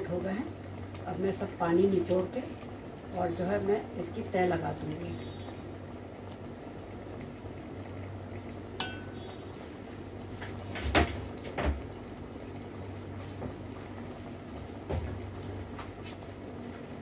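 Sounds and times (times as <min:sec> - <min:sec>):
steady low hum: 0:00.0 - 0:17.0
metal utensil clinking on pot: 0:08.8 - 0:09.2.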